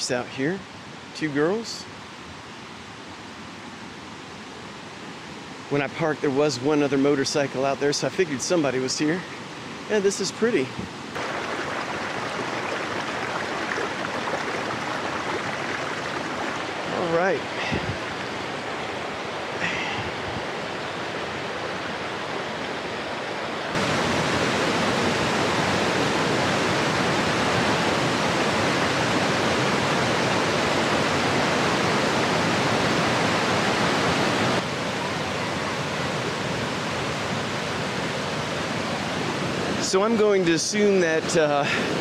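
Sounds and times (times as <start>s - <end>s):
waterfall and stream rushing: 0.0s - 42.0s.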